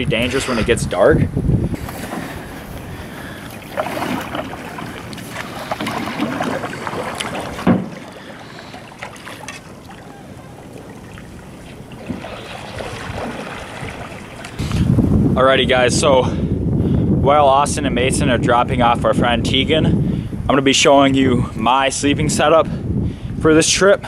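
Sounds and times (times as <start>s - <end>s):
paddles splashing in water: 1.7s - 14.9s
knocks on metal canoe: 7.5s - 8.1s.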